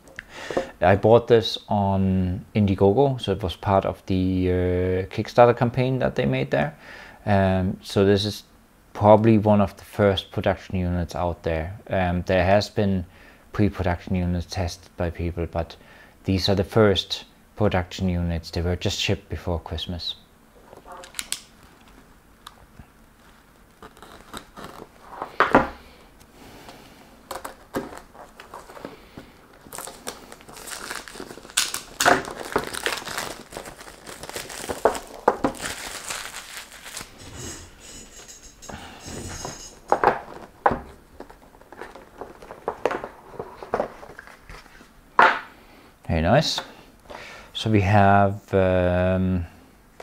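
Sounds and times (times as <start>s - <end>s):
wrapping crinkling and tearing: 23.1s - 25.2s, 27.2s - 38.2s
cardboard box rustling: 27.3s - 37.3s, 39.2s - 44.7s.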